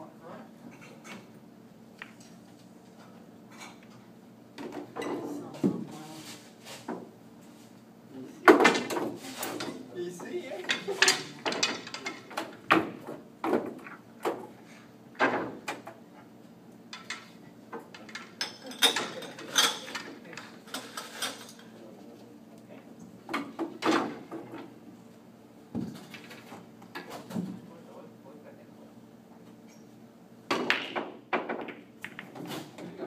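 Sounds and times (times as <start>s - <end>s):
pool balls clacking: 8.4s - 14.6s, 16.9s - 21.7s, 30.5s - 33.0s.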